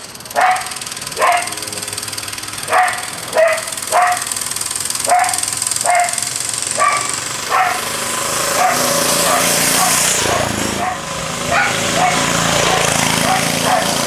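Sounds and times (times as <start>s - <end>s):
dog barking: 0.4s - 1.6s, 2.7s - 4.3s, 5.0s - 7.9s, 8.6s - 14.0s.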